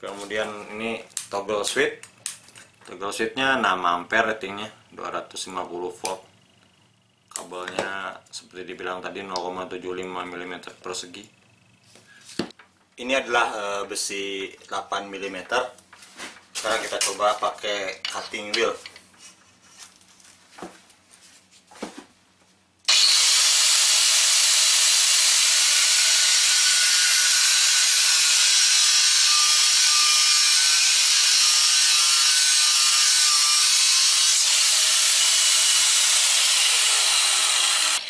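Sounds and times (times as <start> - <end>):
angle grinder cutting steel: 22.9 - 38.0.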